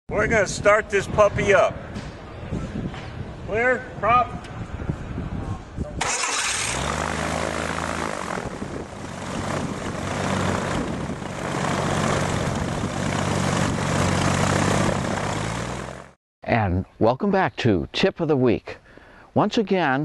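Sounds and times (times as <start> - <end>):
aircraft engine turning a propeller: 4.4 - 16.2.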